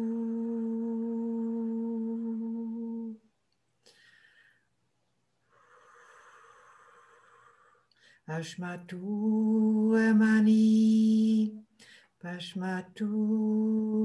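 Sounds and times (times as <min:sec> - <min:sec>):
person humming a long note: 0:00.0 - 0:03.2.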